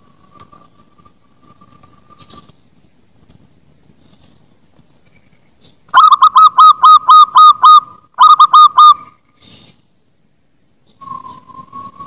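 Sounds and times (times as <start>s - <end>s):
dove cooing: 6.0s - 9.0s.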